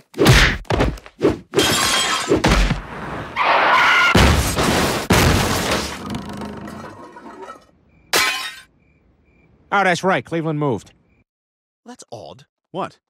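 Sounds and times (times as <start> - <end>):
glass shattering: 1.6 - 2.7, 6.7 - 8.7
wood breaking crashes: 3.8 - 8.7
debris clattering: 3.9 - 8.7.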